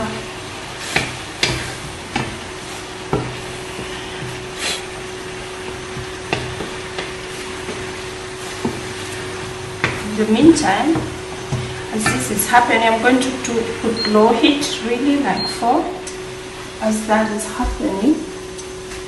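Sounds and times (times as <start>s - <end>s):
faint steady hum: 0.0s - 19.0s
sauce sizzling in pan: 0.5s - 13.9s
spatula stirring in pan: 0.7s - 13.9s.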